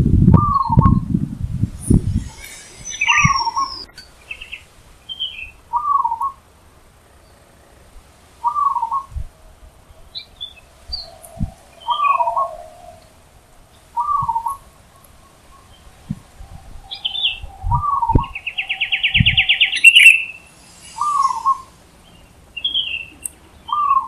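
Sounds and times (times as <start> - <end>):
small birds chirping: 1.8 - 6.4, 7.0 - 24.0
dove cooing: 5.7 - 6.4, 8.4 - 9.1, 10.0 - 13.3, 13.9 - 20.2.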